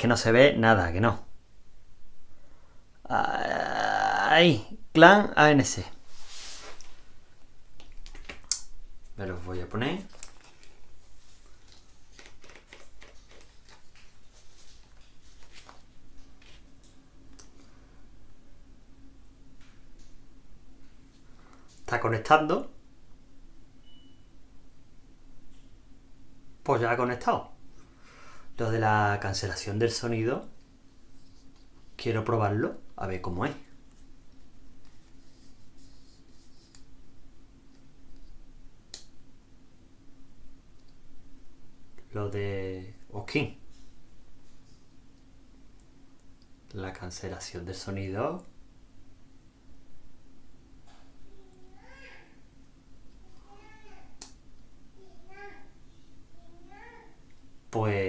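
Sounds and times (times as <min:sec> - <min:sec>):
faint rustling of headphones: 0:05.9 - 0:08.4, 0:10.0 - 0:18.2, 0:30.7 - 0:32.0, 0:33.8 - 0:37.0.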